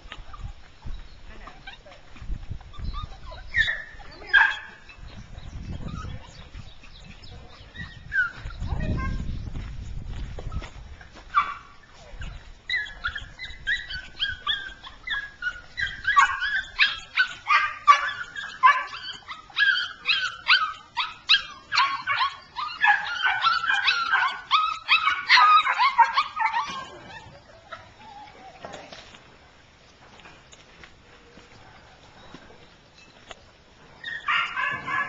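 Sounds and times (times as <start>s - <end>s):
puppy whining and yipping: 2.6s - 8.8s, 11.4s - 28.6s, 34.0s - 35.0s.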